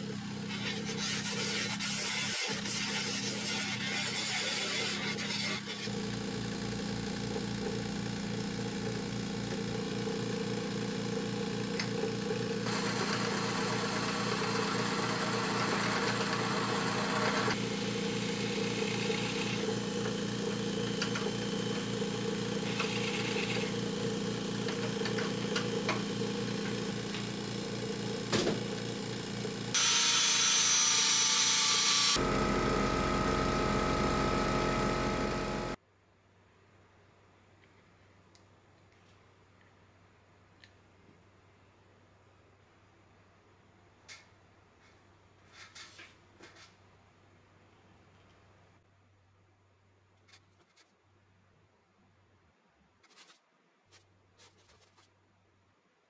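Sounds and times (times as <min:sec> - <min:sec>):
gouge scraping wood: 0:00.5 - 0:05.9
lathe motor hum: 0:05.2 - 0:35.8.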